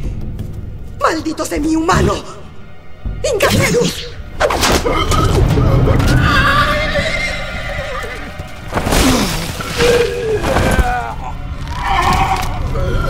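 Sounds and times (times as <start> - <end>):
hooves stamping: 0.0 - 1.6.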